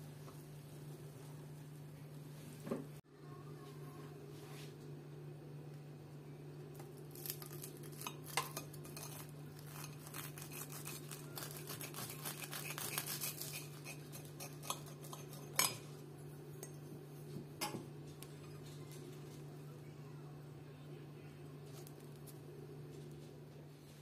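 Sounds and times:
steady low hum: 0.0 - 24.0
knife crunching through toast: 6.8 - 15.6
knife clinking on ceramic plate: 13.5 - 15.8.

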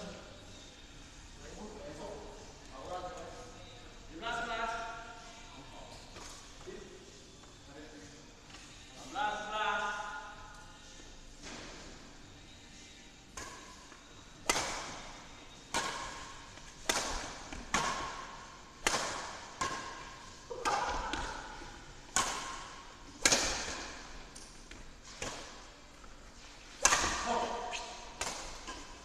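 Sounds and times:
rackets smacking shuttlecock: 13.3 - 29.0.

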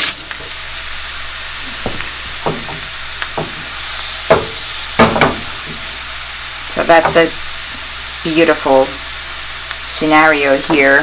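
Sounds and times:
garlic sizzling in oil: 0.0 - 11.0
short knocks: 4.3 - 5.9.

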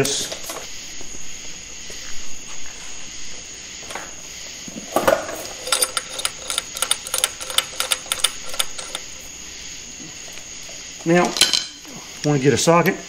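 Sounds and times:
puller screw clicking and clinking: 5.5 - 9.3.

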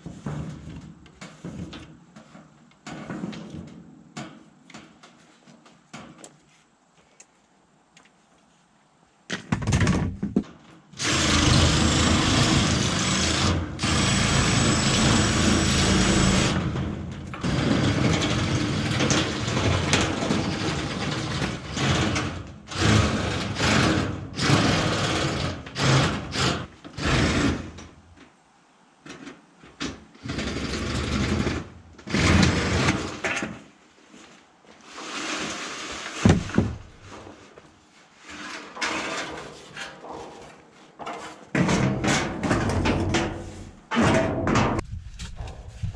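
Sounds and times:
power tool cutting metal sheet: 11.0 - 27.8.

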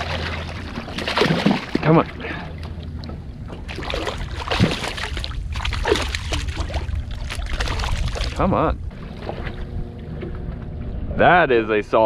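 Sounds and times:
fish thrashing and splashing: 0.0 - 2.8, 3.6 - 8.4
water sloshing: 0.0 - 11.2
wind rumble on microphone: 2.8 - 12.0.

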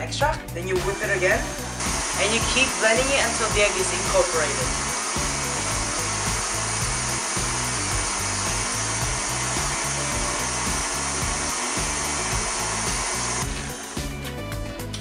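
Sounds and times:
background music with bass beat: 0.0 - 15.0
stand mixer running: 1.5 - 14.6.

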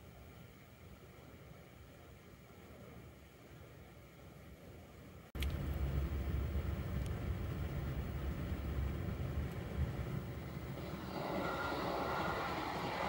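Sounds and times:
low steady rumble: 0.0 - 13.0
electric train running: 5.6 - 13.0.

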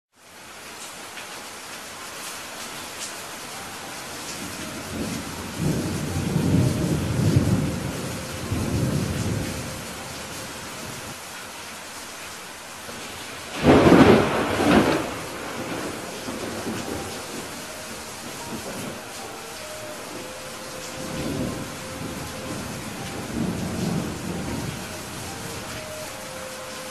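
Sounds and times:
steady rain: 0.1 - 26.9
low rolling thunder: 4.4 - 11.2, 12.9 - 26.9
sharp thunderclap: 13.5 - 17.6.

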